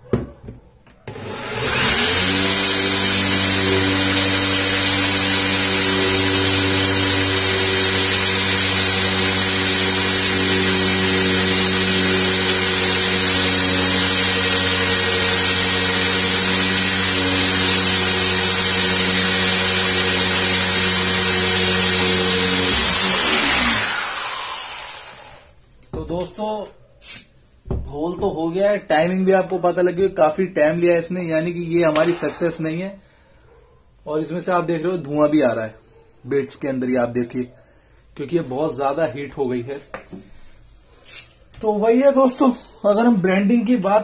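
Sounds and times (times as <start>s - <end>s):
electric drill boring into wood: 1.1s - 25.6s, 32.0s - 32.6s.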